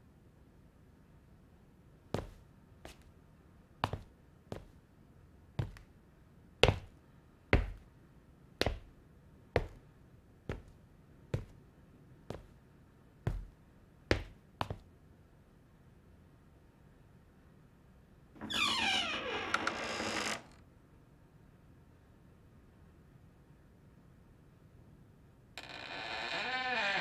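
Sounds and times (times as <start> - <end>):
footsteps on hard floor: 7.6 - 7.8, 10.5 - 10.7, 13.3 - 13.5.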